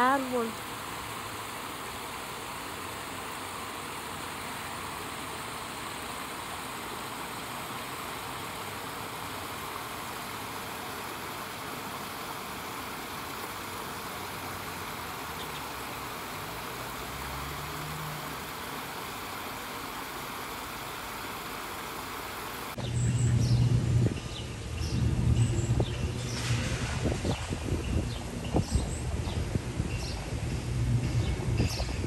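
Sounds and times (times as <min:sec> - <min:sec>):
creek water over rocks: 0:00.0 - 0:22.8.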